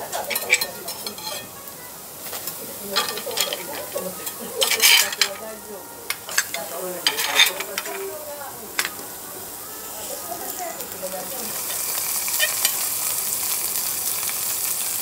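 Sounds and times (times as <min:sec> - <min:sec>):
spatulas scraping on steel griddle: 0:00.0 - 0:09.1, 0:09.8 - 0:12.8
seafood sizzling: 0:00.0 - 0:15.0.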